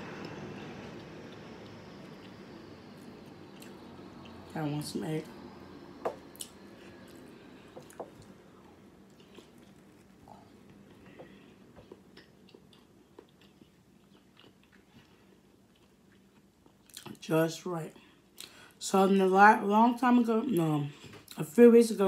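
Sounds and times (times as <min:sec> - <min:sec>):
chewing egg: 0:11.8 - 0:17.1.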